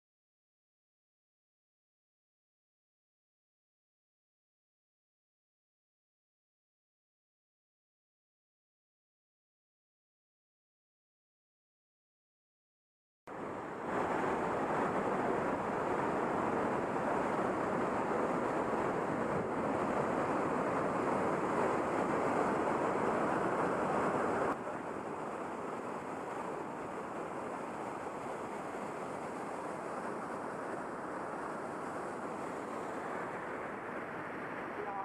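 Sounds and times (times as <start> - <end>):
rushing river rapids: 13.3 - 35.0.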